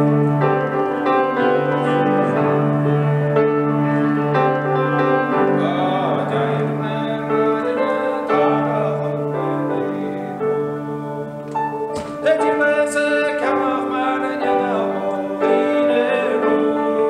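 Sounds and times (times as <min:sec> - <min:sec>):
grand piano chords: 0:00.0 - 0:17.0
man singing: 0:05.3 - 0:11.3, 0:12.1 - 0:17.0.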